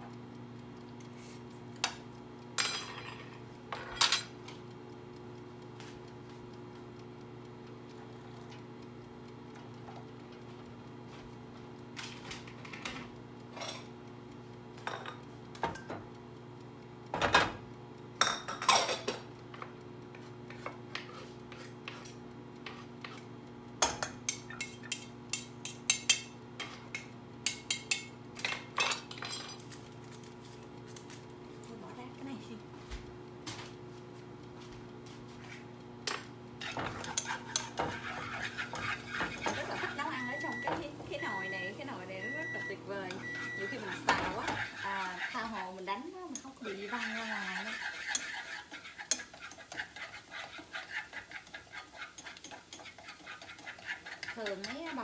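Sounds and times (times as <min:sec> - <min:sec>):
dishes and utensils clinking: 0:02.6 - 0:04.3.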